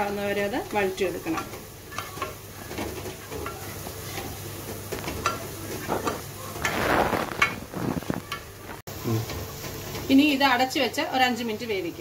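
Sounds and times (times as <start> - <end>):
vegetables sizzling in oil: 0.0 - 12.0
spoon stirring and scraping pan: 0.6 - 8.5.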